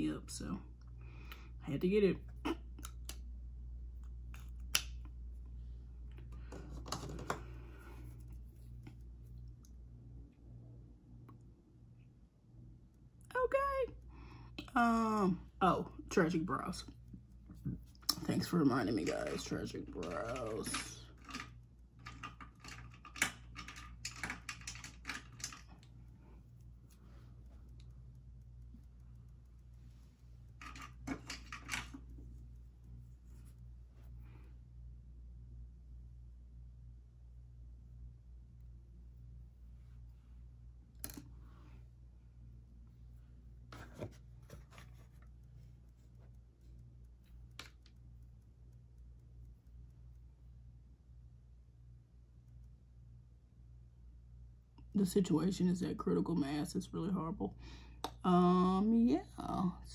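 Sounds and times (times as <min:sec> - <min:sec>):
low room tone hum: 0:00.0 - 0:59.9
small hard objects clicking: 0:19.3 - 0:25.6.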